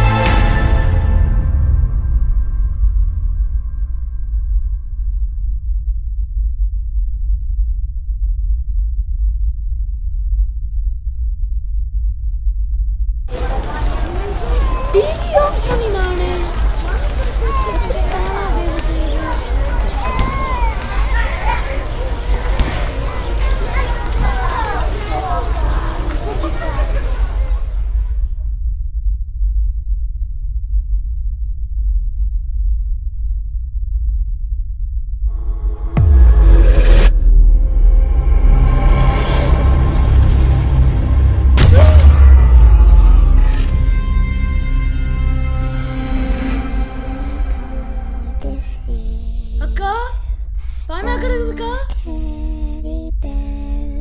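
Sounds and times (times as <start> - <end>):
low rumbling drone: 0.0 - 15.0, 27.6 - 54.0.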